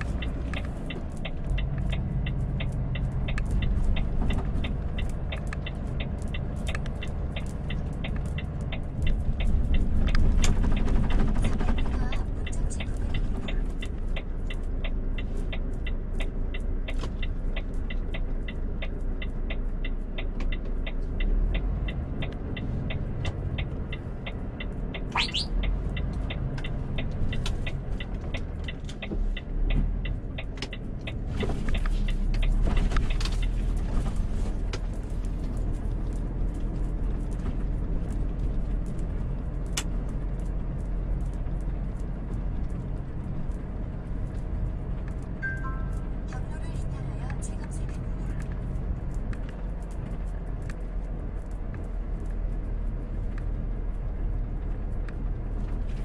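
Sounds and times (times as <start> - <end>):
rapid steady ticking: 0.0 - 56.0
road rumble: 0.0 - 56.0
truck diesel engine: 0.0 - 56.0.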